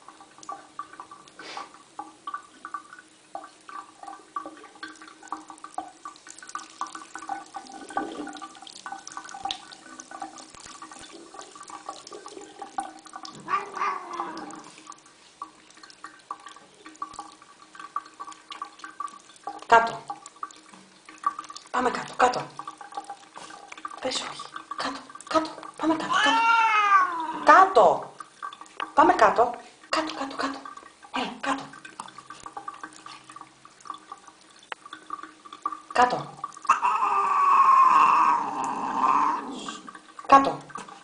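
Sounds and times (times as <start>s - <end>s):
dripping water: 0.0s - 41.0s
tap water running and splashing: 0.0s - 41.0s
cat meowing: 13.4s - 14.7s, 25.9s - 27.5s, 36.7s - 39.5s.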